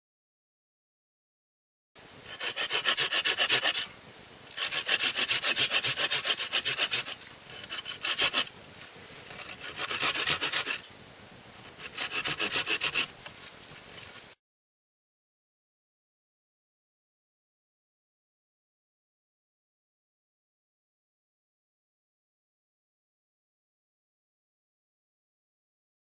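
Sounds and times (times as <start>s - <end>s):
hand saw cutting wood: 2.2s - 3.9s, 4.5s - 8.5s, 9.2s - 10.9s, 11.7s - 13.1s.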